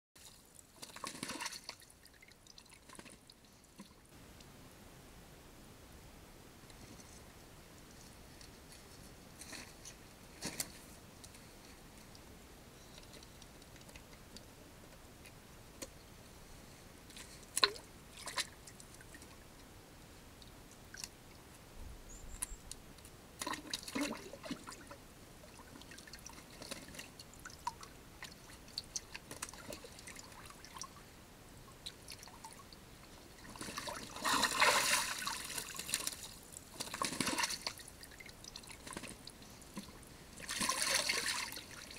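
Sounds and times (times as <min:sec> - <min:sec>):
bird splashing water: 0:00.2 - 0:03.9, 0:23.4 - 0:31.0, 0:33.4 - 0:41.9.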